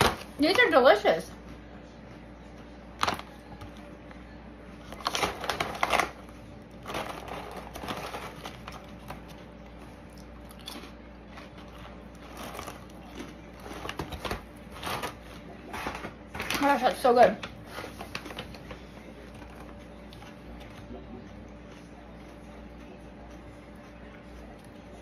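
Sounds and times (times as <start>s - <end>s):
crunchy crackers being chewed: 4.8s - 15.2s
plastic bag crinkling: 4.9s - 15.2s.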